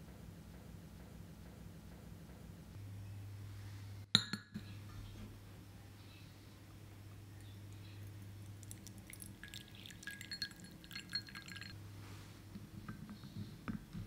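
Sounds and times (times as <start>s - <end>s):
low steady hum: 0.0s - 14.0s
water trickling and splashing: 8.1s - 11.7s.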